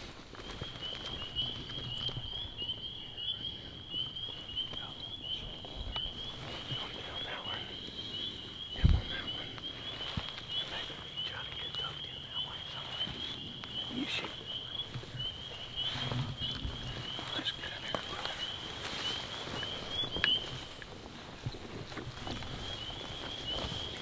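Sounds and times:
frogs chirping: 0:00.4 - 0:24.0
faint rustles and knocks: 0:12.7 - 0:24.0.

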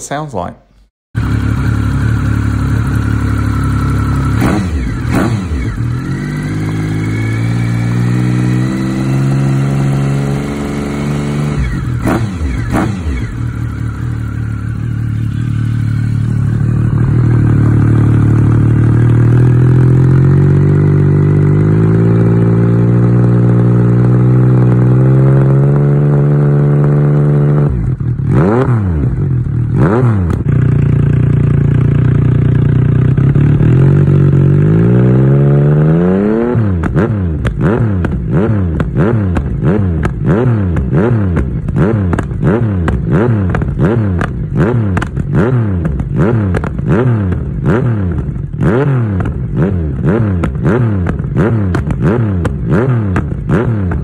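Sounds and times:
motorcycle engine idling: 0:01.2 - 0:25.0, 0:29.1 - 0:34.9, 0:36.8 - 0:54.0
engine throttle blips: 0:01.2 - 0:54.0.

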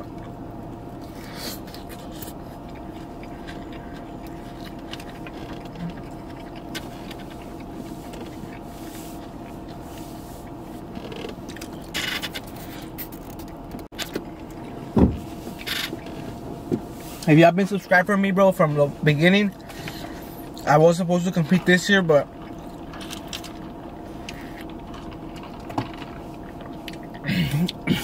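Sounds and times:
car cabin hum: 0:00.0 - 0:28.0.

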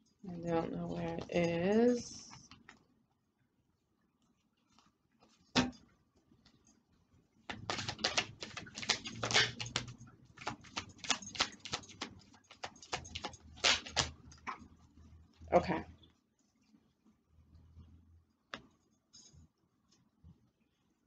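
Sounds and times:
cards being shuffled: 0:07.5 - 0:14.2.

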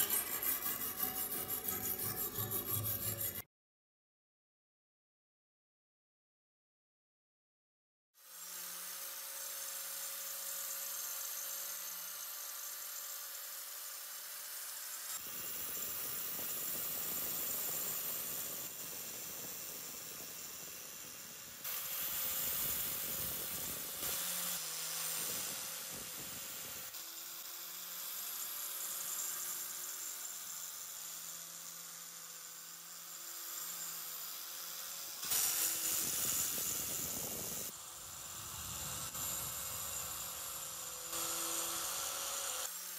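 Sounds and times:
wire brush scratching metal: 0:00.0 - 0:03.4
power tool motor hum: 0:08.2 - 0:42.9.

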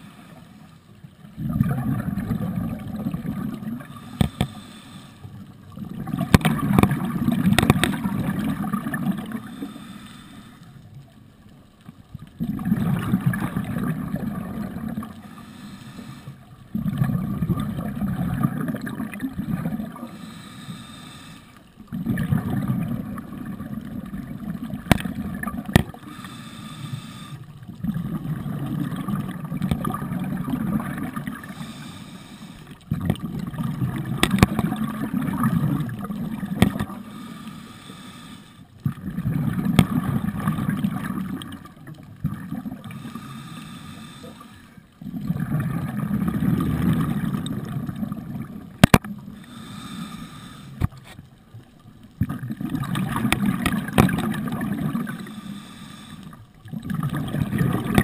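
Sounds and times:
bubbling regulator exhalations: 0:01.4 - 0:04.6, 0:05.7 - 0:09.7, 0:12.4 - 0:15.2, 0:16.7 - 0:20.1, 0:21.9 - 0:26.4, 0:27.7 - 0:31.8, 0:32.8 - 0:37.1, 0:38.8 - 0:43.2, 0:45.0 - 0:49.8, 0:52.2 - 0:55.3, 0:56.6 - 0:58.0
regulator inhalations: 0:03.9 - 0:05.3, 0:09.4 - 0:10.8, 0:15.3 - 0:16.4, 0:20.0 - 0:21.6, 0:26.0 - 0:27.5, 0:31.5 - 0:32.7, 0:36.9 - 0:38.7, 0:42.9 - 0:44.8, 0:49.3 - 0:51.1, 0:55.0 - 0:56.4.

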